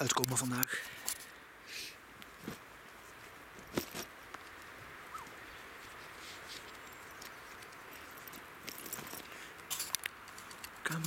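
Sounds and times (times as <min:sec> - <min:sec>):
rustles: 0:00.0 - 0:11.0.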